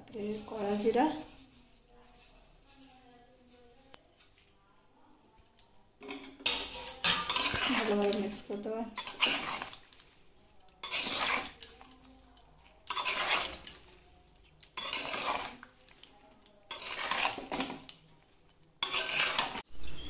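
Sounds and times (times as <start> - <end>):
metal spatula scraping a wok: 6.0 - 18.0, 18.8 - 20.0.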